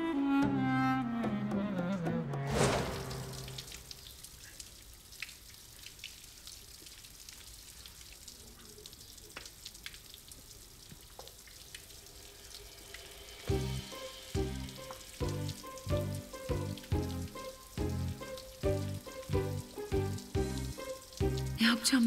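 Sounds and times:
tap water splashing: 2.4s - 8.2s, 9.2s - 11.9s, 13.5s - 21.6s
rhythmic background music: 13.4s - 21.9s.

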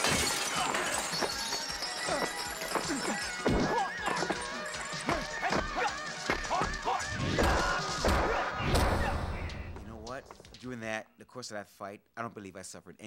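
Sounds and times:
film score music: 0.7s - 10.8s.

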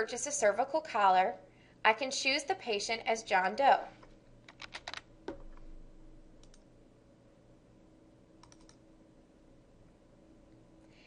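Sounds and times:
keyboard keystrokes: 4.5s - 5.7s, 6.4s - 6.6s, 8.4s - 8.8s.

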